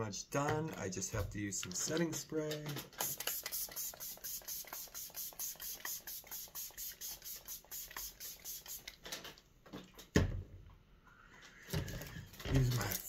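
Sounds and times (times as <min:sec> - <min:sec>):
spray bottle hissing: 0:02.9 - 0:09.0.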